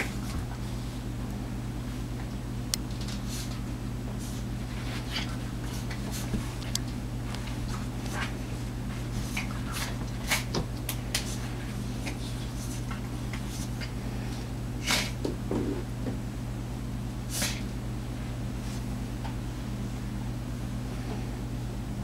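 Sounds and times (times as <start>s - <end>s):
steady low hum: 0.0s - 22.0s
dogs scuffling: 2.9s - 14.4s.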